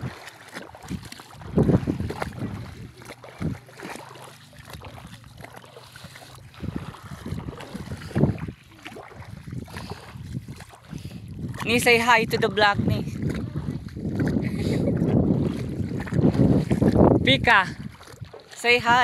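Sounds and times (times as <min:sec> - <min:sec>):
wading through shallow water: 0:00.0 - 0:19.0
wind gusting on microphone: 0:00.8 - 0:03.6, 0:06.5 - 0:18.2.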